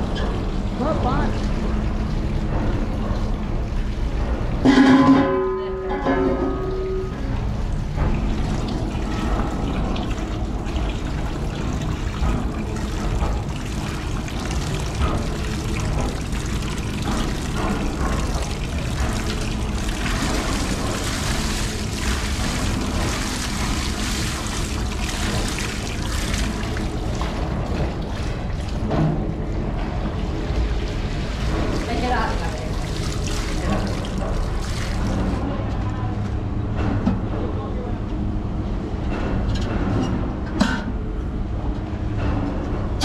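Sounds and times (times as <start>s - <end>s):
water streaming into tank: 6.0s - 35.5s
water splashing off metal pots: 7.7s - 28.9s, 31.2s - 35.4s.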